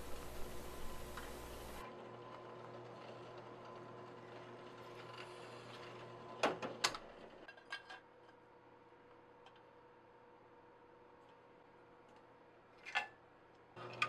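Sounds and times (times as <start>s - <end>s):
drill press motor humming: 0.0s - 1.8s.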